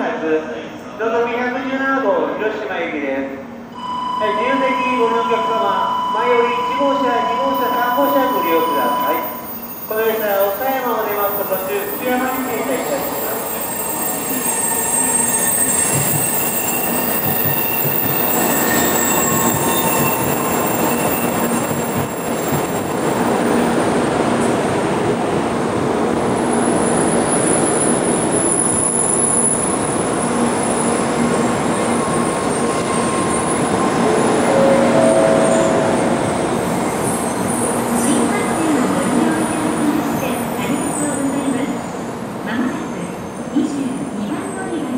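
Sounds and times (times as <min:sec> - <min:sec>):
train wheels rolling on rails: 0:09.3 - 0:41.6
thin high squealing: 0:11.4 - 0:21.9, 0:34.0 - 0:37.4.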